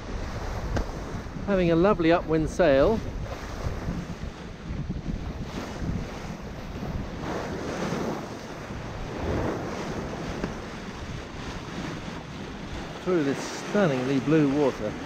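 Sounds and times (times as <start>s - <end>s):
water rushing along a hull: 0.0s - 15.0s
wind buffeting microphone: 0.0s - 15.0s.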